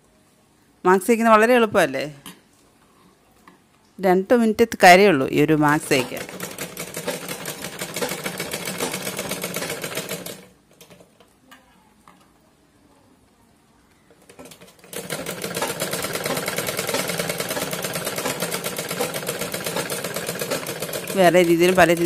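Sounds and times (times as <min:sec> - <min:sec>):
sewing machine clatter: 0:05.8 - 0:11.2, 0:14.2 - 0:22.0.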